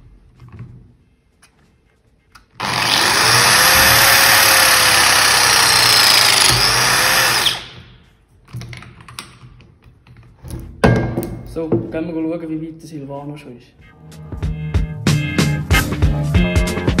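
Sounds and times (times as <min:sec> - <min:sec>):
pipe press tool motor whine: 0:02.6 - 0:07.8.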